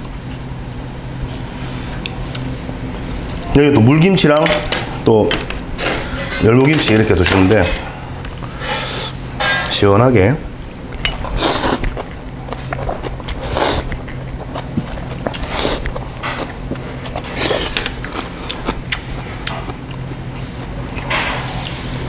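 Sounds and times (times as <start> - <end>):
chewing: 10.6 - 21.9
noodles being slurped: 11.2 - 19.1.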